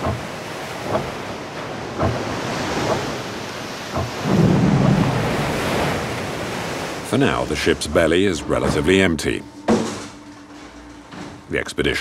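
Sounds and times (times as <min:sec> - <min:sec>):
sea waves: 0:00.0 - 0:12.0
wind: 0:00.0 - 0:12.0
low hum: 0:07.0 - 0:12.0.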